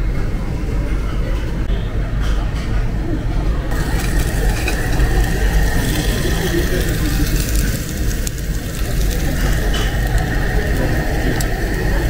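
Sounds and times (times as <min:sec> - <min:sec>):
faint voices of diners: 0:00.0 - 0:12.0
low rumble: 0:03.7 - 0:12.0
thin steady whine: 0:03.7 - 0:12.0.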